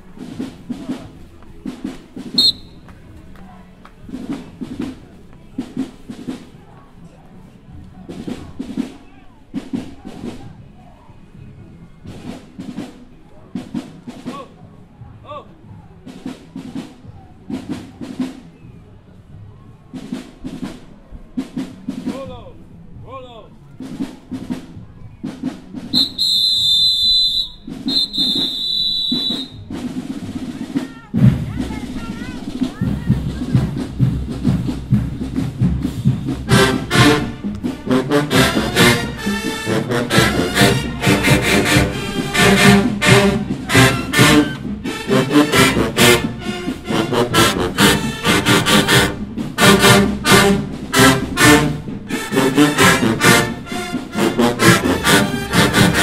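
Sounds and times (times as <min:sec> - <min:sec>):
marching drumline playing: 0:00.0 - 0:06.6, 0:08.0 - 0:10.8, 0:12.0 - 0:14.6, 0:16.0 - 0:18.5, 0:19.9 - 0:22.6, 0:23.8 - 0:56.0
loud whistle blast: 0:02.4 - 0:02.8, 0:25.9 - 0:29.6.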